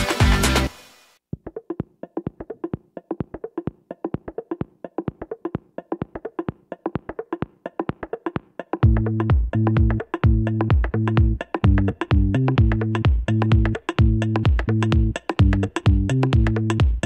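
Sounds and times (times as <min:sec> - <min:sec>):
electronic dance music: 0:00.0 - 0:01.0.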